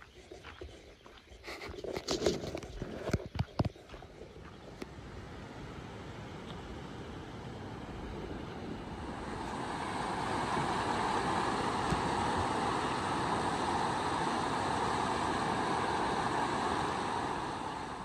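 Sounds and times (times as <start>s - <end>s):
water rushing over rapids: 4.7s - 18.0s.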